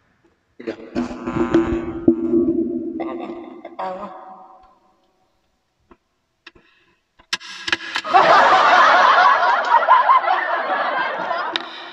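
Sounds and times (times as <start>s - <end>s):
loud laughter: 8.1s - 11.9s.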